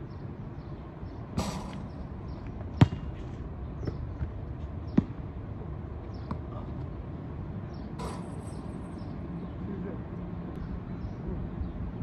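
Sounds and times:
basketball knocks: 0:02.8 - 0:03.2.

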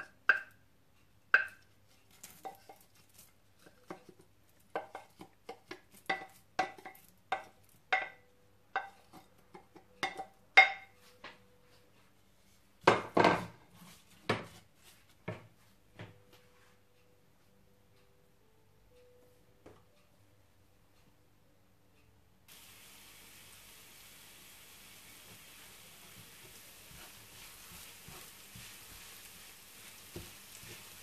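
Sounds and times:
spatula scraping a frying pan: 0:02.0 - 0:03.9, 0:25.6 - 0:31.0.

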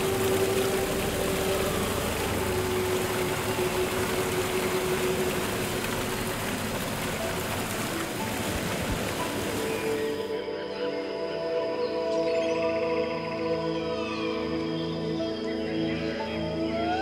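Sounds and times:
rainfall hiss: 0:00.0 - 0:10.3.

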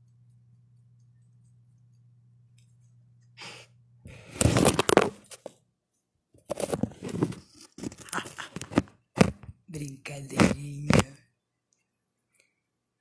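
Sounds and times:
faint steady hum: 0:00.0 - 0:13.0
phone handling rustling: 0:04.3 - 0:05.6, 0:06.4 - 0:09.6.

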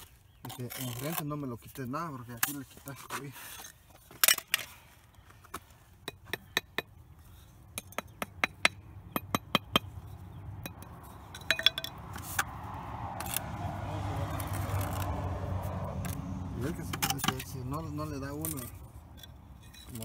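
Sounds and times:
trowel and hammer tapping bricks: 0:07.7 - 0:10.0, 0:10.6 - 0:12.5, 0:16.8 - 0:20.0.

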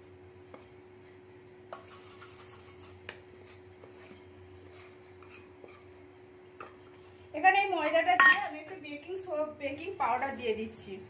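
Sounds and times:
spoon scraping flour from bowl: 0:01.7 - 0:06.0.

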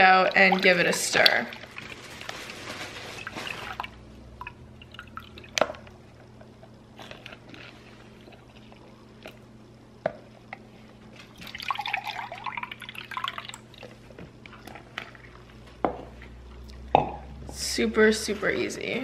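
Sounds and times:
milk pouring into plastic cup: 0:11.4 - 0:14.0.

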